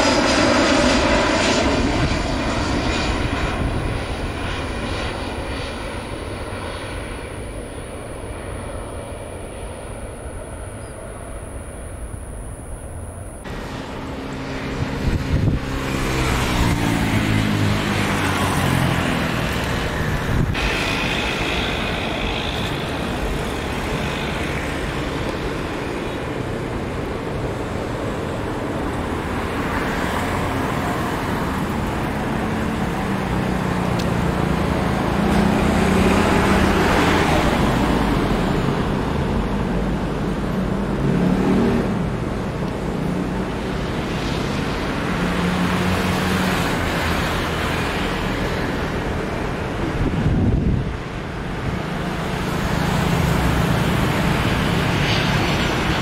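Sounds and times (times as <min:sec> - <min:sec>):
falling-pitched whine passing: 0:00.0 - 0:26.9
engine rumble and hiss: 0:03.2 - 0:56.0.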